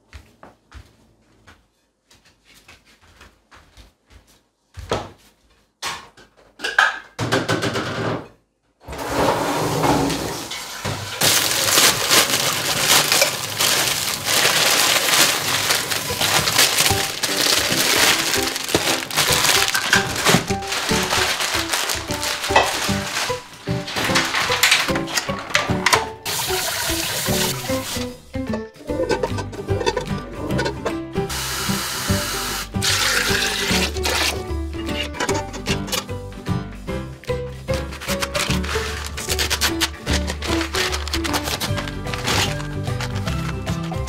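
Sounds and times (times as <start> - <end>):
soft footsteps: 0.0 - 5.8
plastic packets crinkling and tearing: 11.2 - 25.4, 37.7 - 44.0
background music: 11.2 - 44.0.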